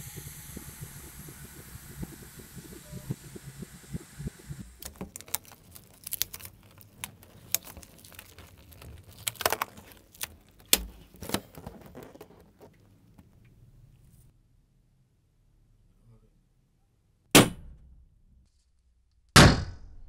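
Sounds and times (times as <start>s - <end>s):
rubber balloon squeaks: 4.8s - 12.9s.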